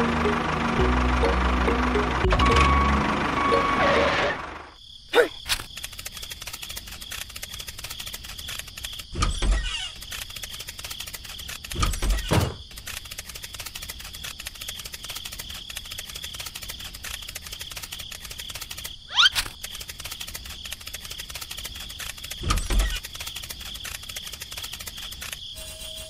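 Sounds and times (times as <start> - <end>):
fast ticking: 5.8 - 9.1, 9.9 - 11.9, 12.7 - 25.4.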